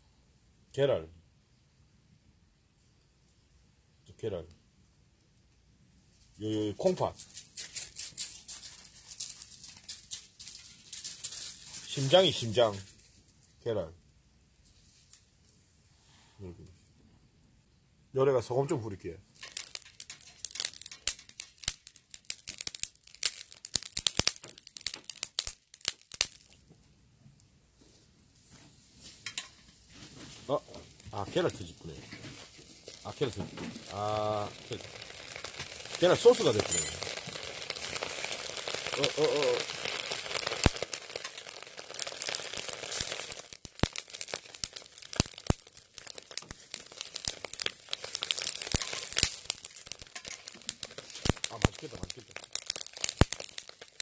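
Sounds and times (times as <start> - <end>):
salt crackling on hot coals: 5.2 - 13.8, 14.5 - 16.7, 18.4 - 54.0
chicken sizzling on charcoal grill: 6.4 - 12.9, 19.2 - 26.6, 28.5 - 54.0.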